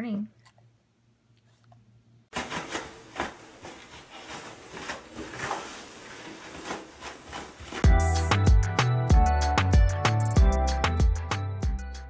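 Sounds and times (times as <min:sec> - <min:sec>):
toilet paper crinkling and rustling: 0:02.3 - 0:07.8.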